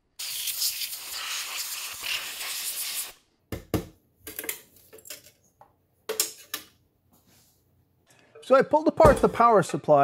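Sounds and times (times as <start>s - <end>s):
compressed air spraying: 0.2s - 3.2s.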